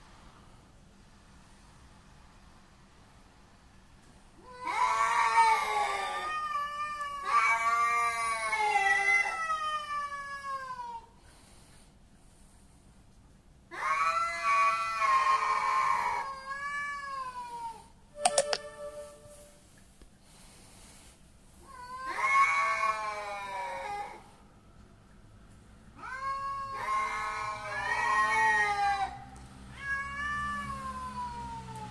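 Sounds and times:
cats yowling: 4.4s - 11.1s, 13.7s - 17.9s, 21.7s - 24.4s, 25.9s - 31.9s.

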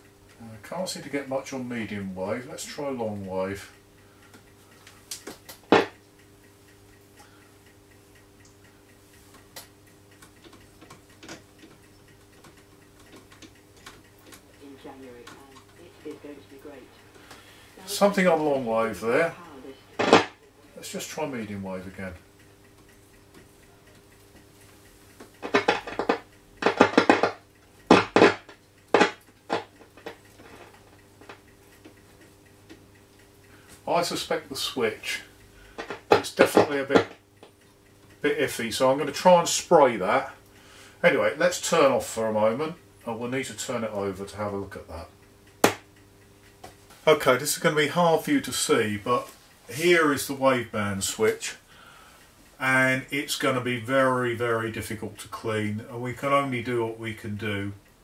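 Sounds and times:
faint irregular ticks: 0.0s - 58.0s
steady low hum: 0.0s - 58.0s
radio switch crackles and clicks: 20.0s - 20.4s, 25.2s - 32.0s.

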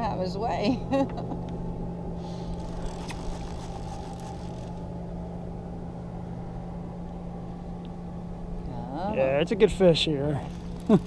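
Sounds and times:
engine humming: 0.0s - 11.0s.

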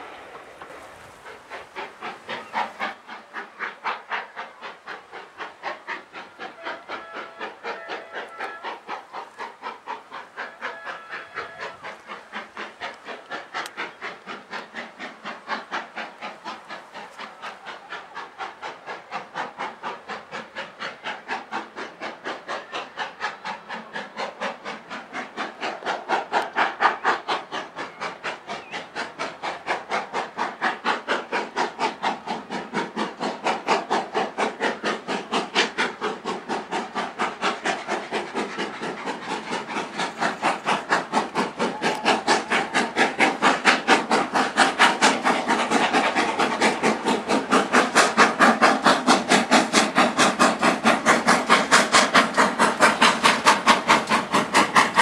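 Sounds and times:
steam locomotive chuffing: 0.0s - 55.0s.

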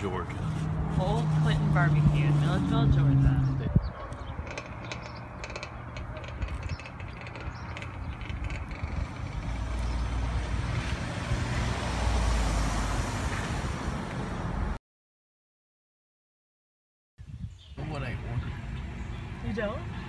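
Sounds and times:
car driving past: 9.6s - 14.8s.

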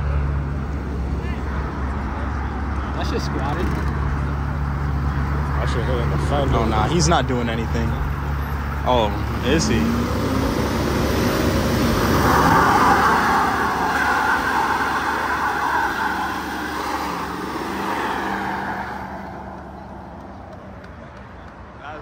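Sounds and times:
truck engine running hard: 0.0s - 21.1s
tyres screeching: 7.8s - 20.5s.

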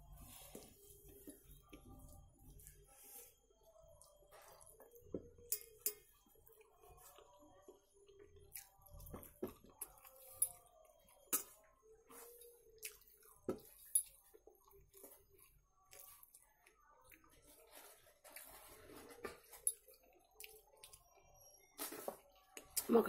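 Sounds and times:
chewing and lip smacks: 8.4s - 10.6s, 12.8s - 13.9s.

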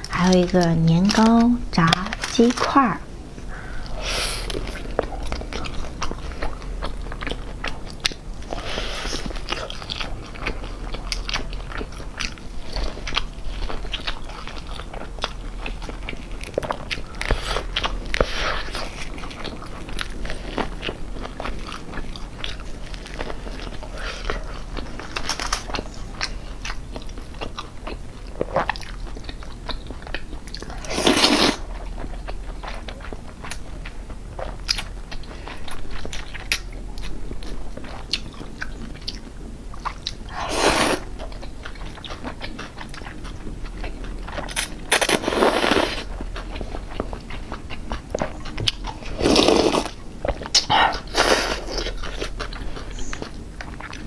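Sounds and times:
chewing and crunching fried food: 0.0s - 54.0s
slurping noodles: 30.9s - 31.6s, 44.9s - 46.1s, 49.2s - 49.9s.

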